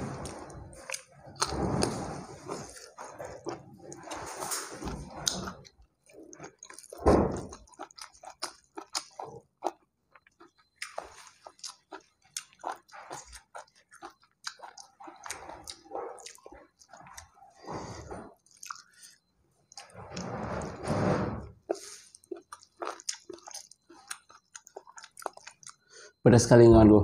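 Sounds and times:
close chewing: 0.0 - 20.8, 21.5 - 25.9
thump: 7.0 - 7.5.

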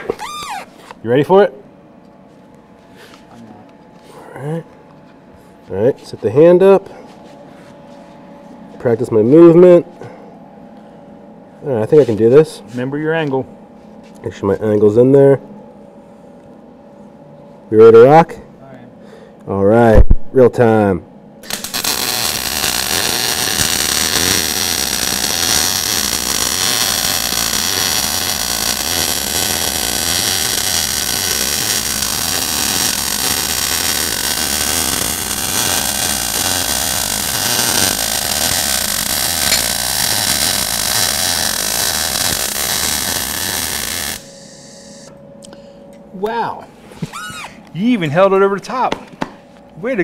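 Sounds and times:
welding arc sizzling: 21.4 - 45.1.

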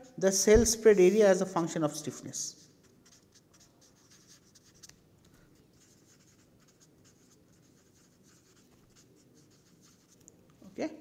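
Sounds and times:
marker pen scratching on paper: 2.4 - 10.2.

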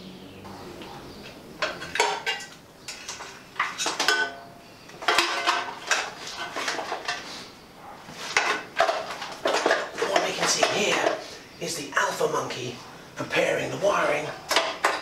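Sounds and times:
metal parts clinking and rattling: 5.0 - 7.3, 8.3 - 11.2.

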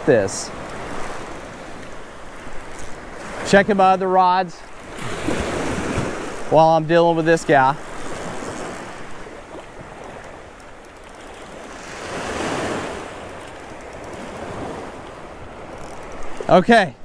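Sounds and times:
small waves washing onto sand: 0.0 - 16.8.

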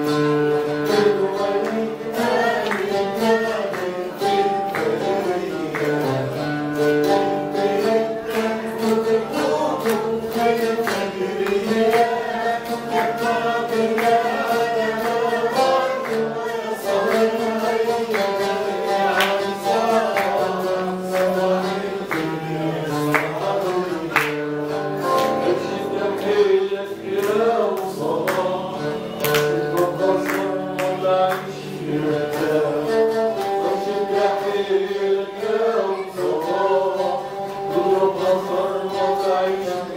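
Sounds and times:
man singing: 0.0 - 39.9
plucked string instrument: 0.0 - 39.9.

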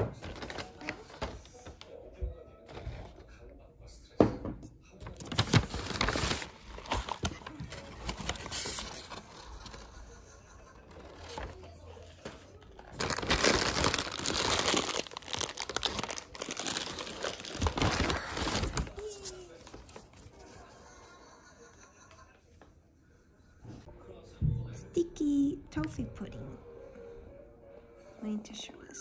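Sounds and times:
crinkling and rustling: 0.0 - 3.5, 5.0 - 10.2, 10.8 - 20.9.

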